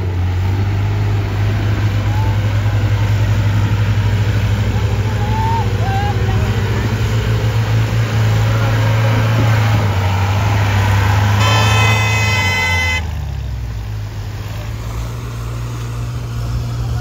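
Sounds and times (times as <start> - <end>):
off-road vehicle engines in mud: 0.0 - 17.0
vehicle horn blowing: 11.3 - 13.2.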